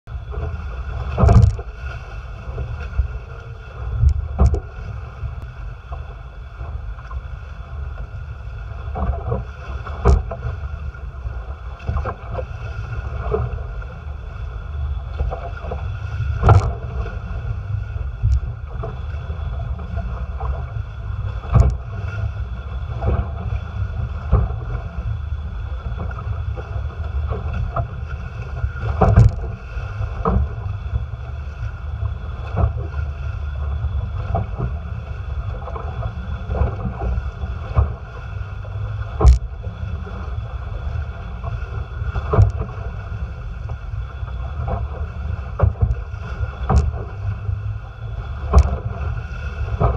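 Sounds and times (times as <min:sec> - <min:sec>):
water rushing along hulls: 0:00.0 - 0:49.9
water slapping the hull: 0:00.0 - 0:49.9
wind buffeting microphone: 0:00.1 - 0:49.9.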